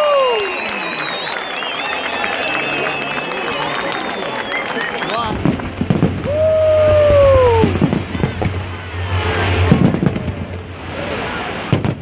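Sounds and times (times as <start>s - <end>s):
falling whistle: 0.0s - 5.2s
fireworks bursting with bangs: 4.1s - 12.0s
low rumble: 5.2s - 12.0s.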